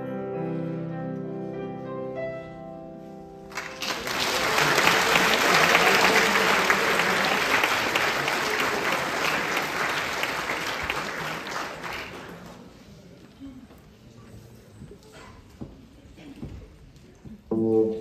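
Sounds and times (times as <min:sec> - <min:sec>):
piano notes: 0:00.0 - 0:03.8
audience applauding: 0:03.5 - 0:12.8.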